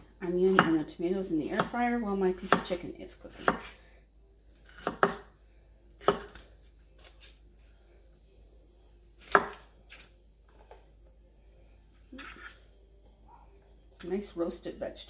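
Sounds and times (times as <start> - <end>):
knife chopping on cutting board: 0.5 - 0.8, 2.4 - 3.8, 4.6 - 5.3, 6.0 - 6.4, 9.2 - 10.0.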